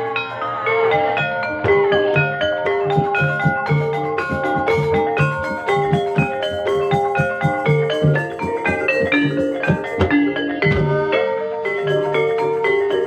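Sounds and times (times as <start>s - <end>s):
mallet-struck tuned percussion: 0.0s - 13.0s
steady drumbeat: 1.6s - 11.1s.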